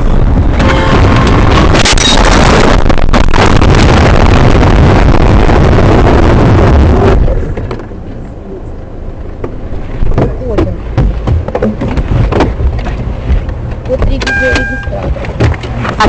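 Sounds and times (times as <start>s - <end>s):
vehicle crash: 0.2s - 8.0s.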